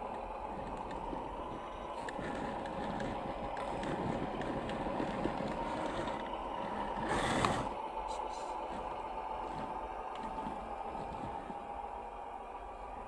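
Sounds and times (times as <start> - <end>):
tyres ticking on dirt clods: 0.0 - 11.8
toy car electric motor whirring: 1.9 - 11.6.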